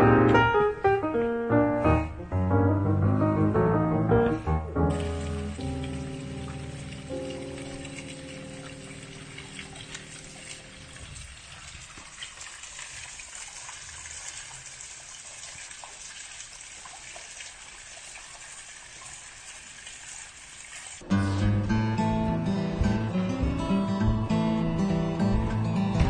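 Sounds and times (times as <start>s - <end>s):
sustained background music notes: 0.0s - 11.0s, 21.0s - 26.0s
waterfall splashing onto rock: 4.9s - 21.0s.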